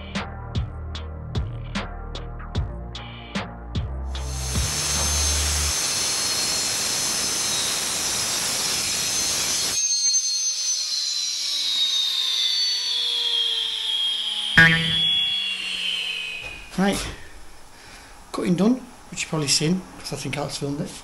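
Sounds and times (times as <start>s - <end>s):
saw blade spinning down whine: 4.2s - 17.7s.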